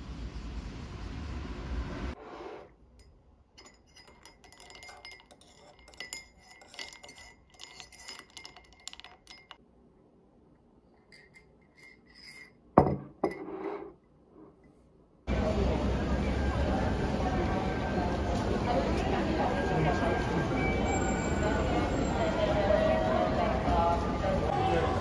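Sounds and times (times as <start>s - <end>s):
spoon clinking ice in mug: 3.0s - 9.6s, 10.9s - 13.7s
knock on mug: 12.8s - 13.4s.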